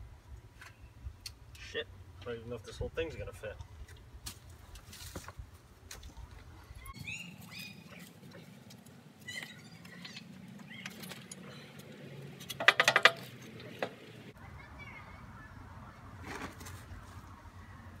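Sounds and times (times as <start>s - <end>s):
bird chirping: 6.7s - 8.6s, 9.2s - 11.9s.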